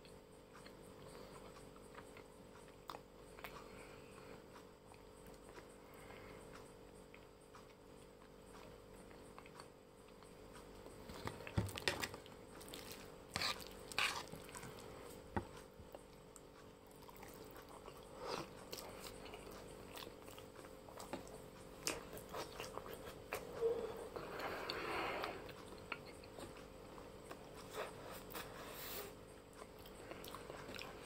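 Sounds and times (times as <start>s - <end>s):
chewing noodles: 11.1s - 28.5s.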